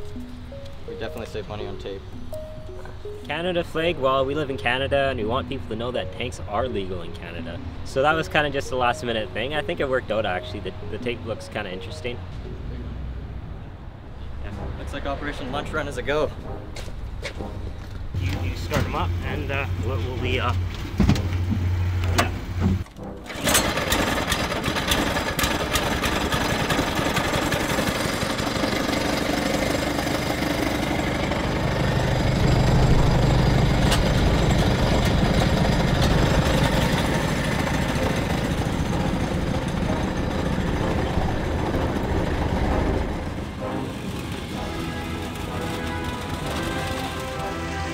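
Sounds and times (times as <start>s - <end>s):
small engine rough clatter: 22.2s - 42.6s, 45.1s - 47.4s.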